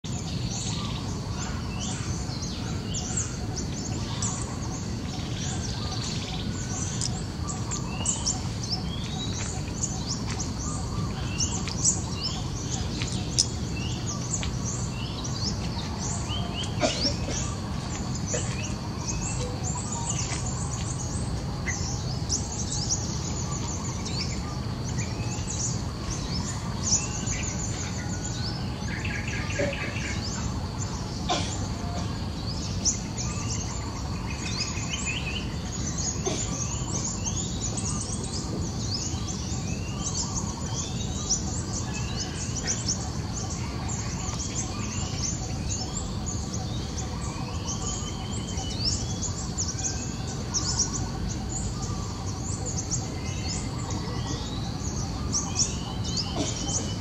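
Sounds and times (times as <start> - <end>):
small birds chirping: 0.0 - 57.0.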